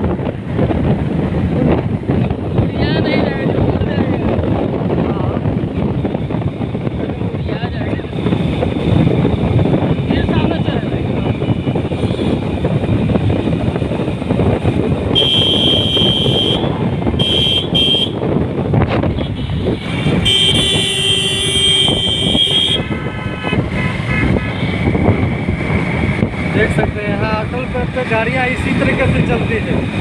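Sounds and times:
car road and wind noise: 0.0 - 30.0
vehicle horns honking: 15.1 - 18.2, 19.1 - 25.0.

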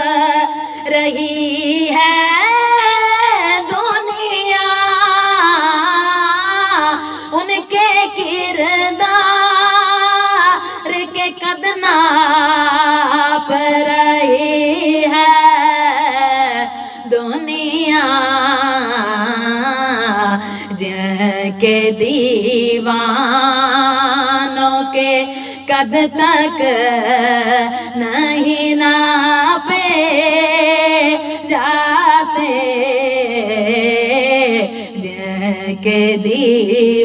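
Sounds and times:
person singing devotional poem: 0.0 - 37.0.

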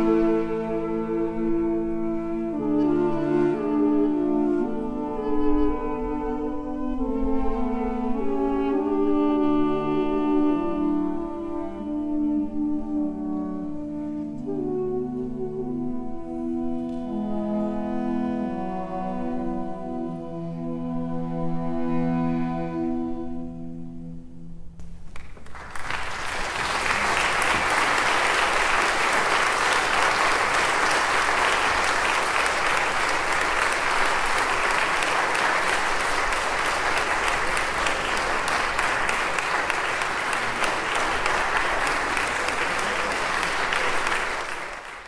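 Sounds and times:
duduk ensemble note: 0.0 - 24.2
audience applauding: 25.1 - 45.0.

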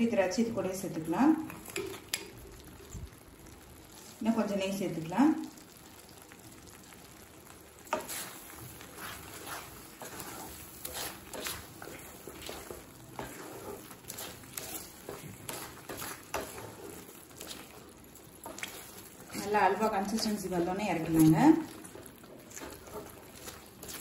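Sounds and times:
spatula scraping a pan: 7.9 - 24.0.

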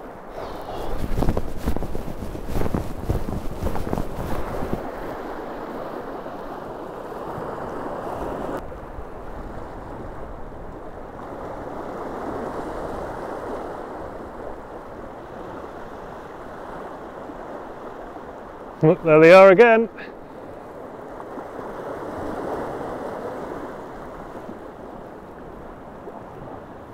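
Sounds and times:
wind buffeting microphone: 0.0 - 18.9
waves washing over rocks: 0.1 - 8.6, 11.1 - 26.9.

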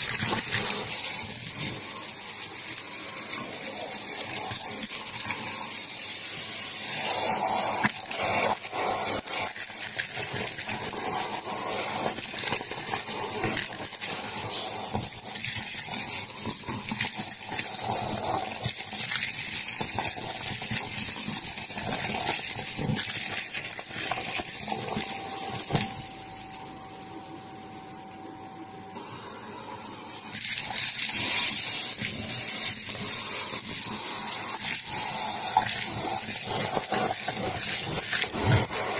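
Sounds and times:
vacuum cleaner suction: 0.0 - 38.9
debris rattling up vacuum tube: 12.0 - 26.0, 30.3 - 38.9.

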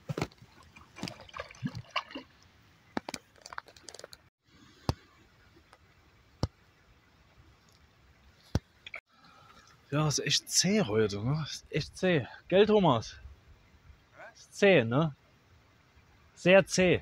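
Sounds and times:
faint outdoor background noise: 0.0 - 17.0.

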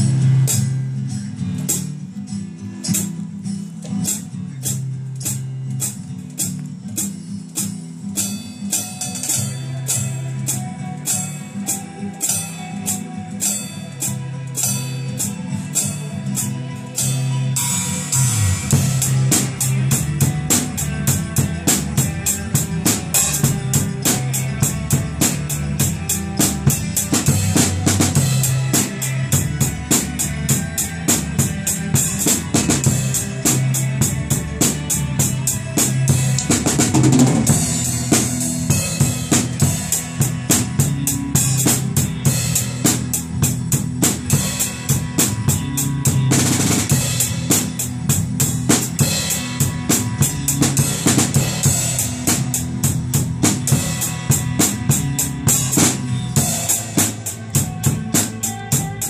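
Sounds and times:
drum kit playing: 0.0 - 59.0
guitar song: 0.0 - 59.0
cymbals crashing: 53.7 - 57.8.

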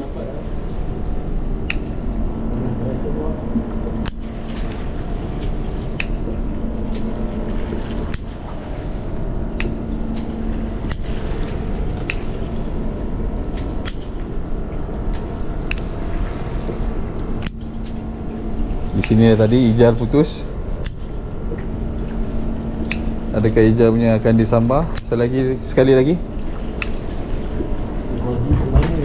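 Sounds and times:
steady low hum: 0.0 - 29.0
water lapping against boat hull: 0.0 - 29.0.

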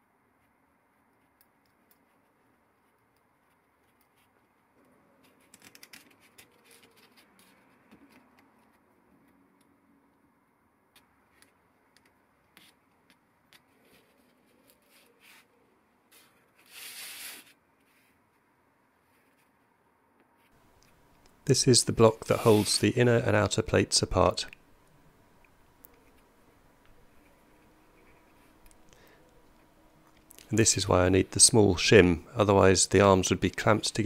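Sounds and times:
metal scrape: 22.2 - 22.9.

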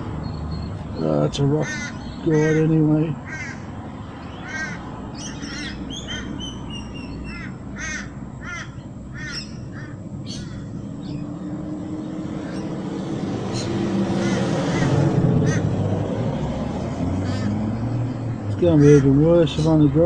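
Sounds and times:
bird short repeated calls: 1.6 - 3.7, 4.3 - 10.8.

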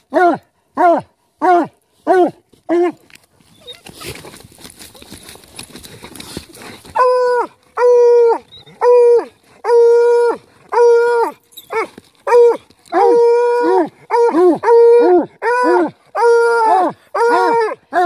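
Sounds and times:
faint scratching at dirt: 1.9 - 7.7.

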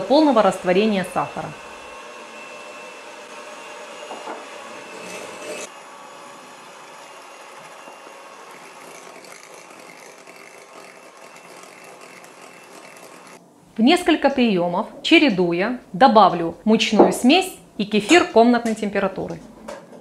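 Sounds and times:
electric mixer whisking: 0.0 - 13.4.

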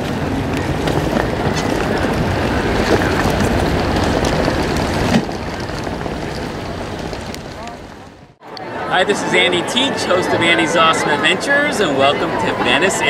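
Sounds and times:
wind buffeting microphone: 0.0 - 8.4
boat engine rumble: 0.0 - 8.9.

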